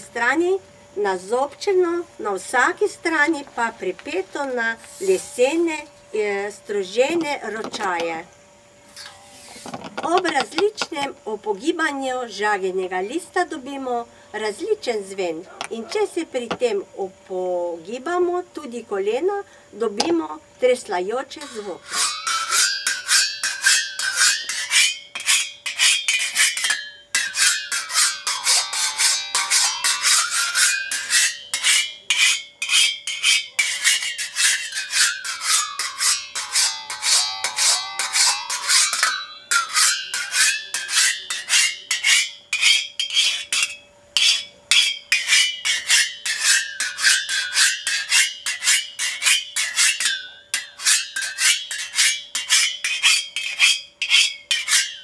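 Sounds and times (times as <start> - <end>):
singing saw ringing: 21.4 - 55.0.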